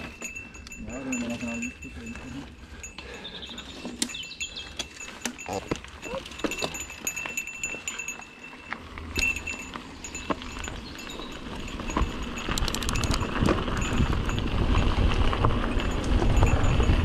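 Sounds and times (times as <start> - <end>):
bike rattling over bumps: 0.0 - 17.0
bike tyres crunching on gravel: 0.0 - 17.0
wind rumble: 8.4 - 17.0.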